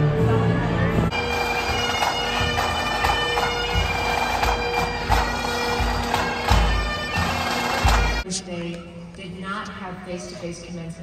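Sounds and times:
bagpipes playing a tune: 1.1s - 8.3s.

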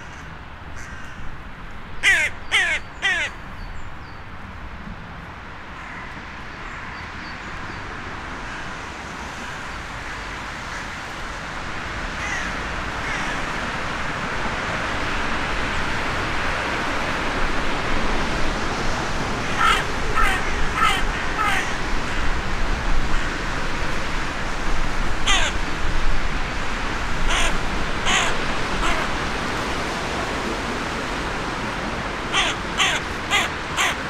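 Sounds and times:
crow cawing: 0.0s - 1.3s, 2.0s - 3.4s, 9.4s - 11.0s, 12.2s - 13.5s, 19.4s - 22.4s, 25.2s - 25.6s, 27.3s - 29.2s, 32.3s - 34.0s.

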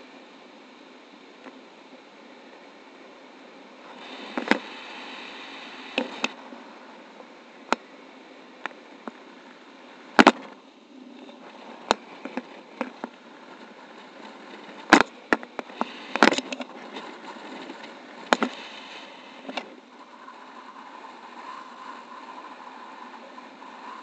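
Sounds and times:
wind hissing over microphone: 10.7s - 24.0s.

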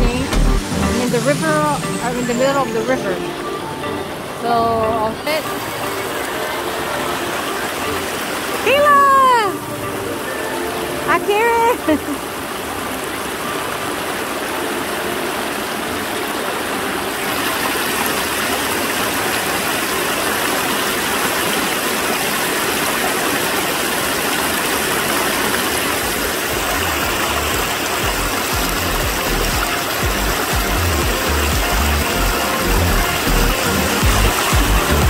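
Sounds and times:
river water rushing over rocks: 0.1s - 35.0s.

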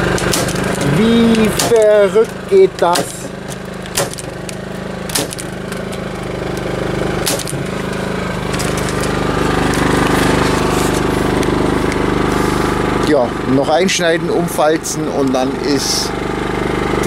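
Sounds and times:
generator engine running: 0.0s - 17.0s
staple gun firing: 0.2s - 0.8s, 1.4s - 2.0s, 2.9s - 5.5s, 7.2s - 7.6s.

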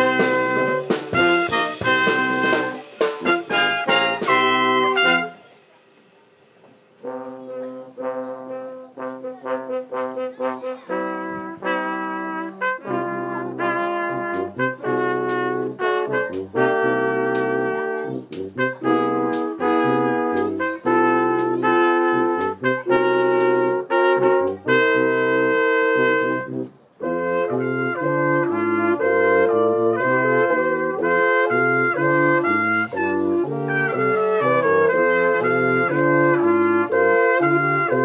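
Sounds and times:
brass band playing: 0.0s - 5.7s, 7.0s - 38.0s
drum and cymbal hits: 0.0s - 5.8s.

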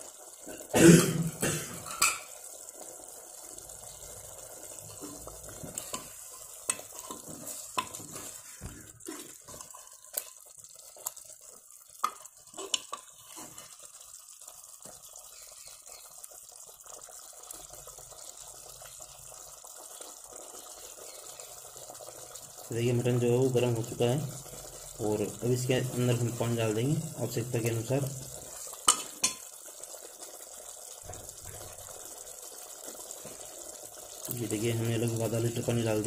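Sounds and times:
meat sizzling: 0.0s - 36.0s
ladle scraping and clinking pot: 1.8s - 2.3s, 4.9s - 10.5s, 12.0s - 13.8s, 28.8s - 29.5s.

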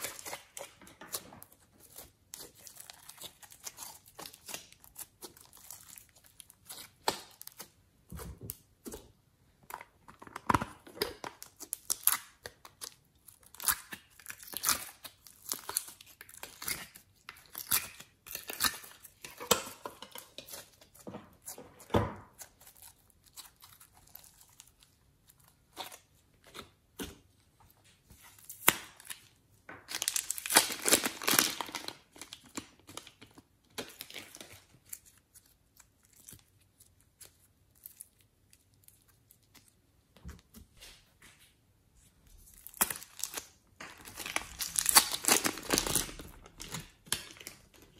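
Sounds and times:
slime crackling and popping: 10.4s - 20.5s, 29.9s - 33.1s, 42.5s - 47.9s.

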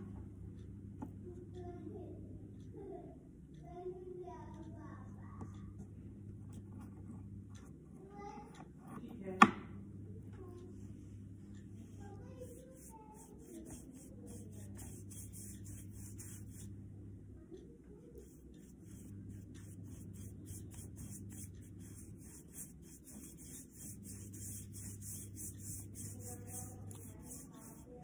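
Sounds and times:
steady low hum: 0.0s - 28.0s
paintbrush rubbing on paper: 12.2s - 16.7s, 18.2s - 28.0s.

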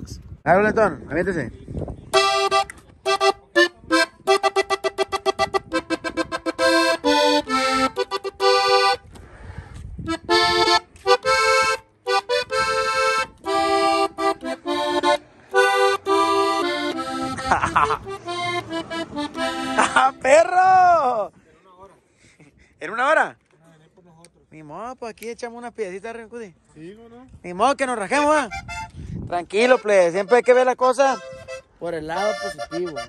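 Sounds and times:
button accordion: 2.1s - 9.2s, 10.0s - 20.5s, 28.2s - 33.0s.

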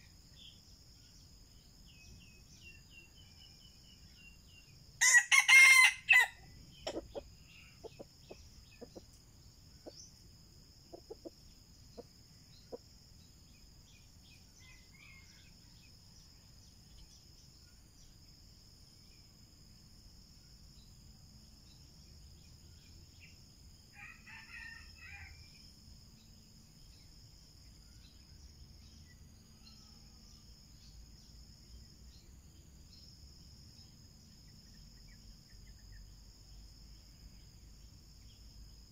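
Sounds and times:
insect drone: 0.0s - 38.9s
rooster crowing: 5.0s - 7.2s, 24.0s - 25.4s
chicken clucking: 6.9s - 9.2s, 10.9s - 12.1s.

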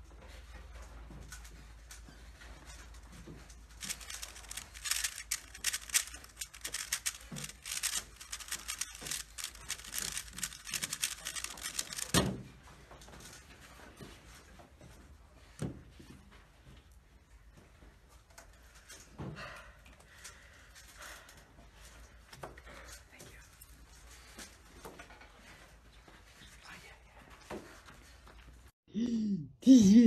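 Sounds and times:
puzzle cube clicking turns: 3.8s - 12.4s.

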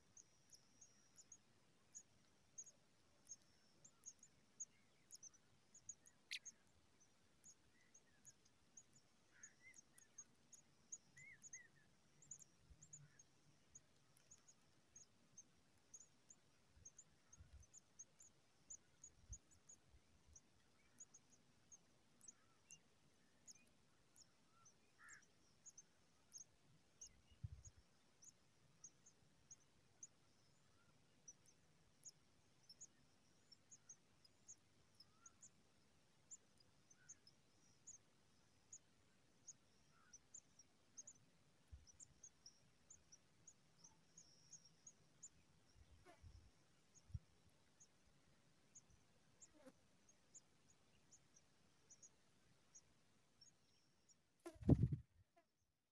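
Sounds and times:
soft chirps: 0.0s - 55.1s.

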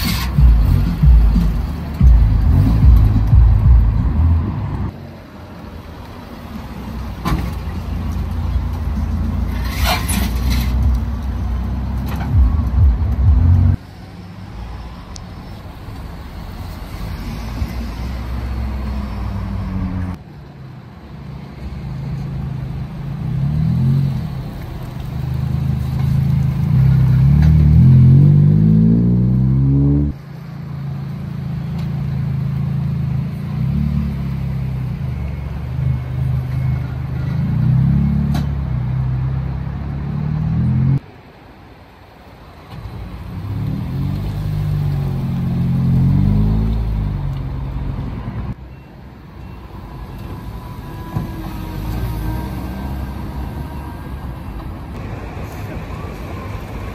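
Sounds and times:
engine revving: 0.0s - 4.9s, 26.6s - 30.2s, 43.4s - 47.6s
car engines rumbling: 0.0s - 56.9s.

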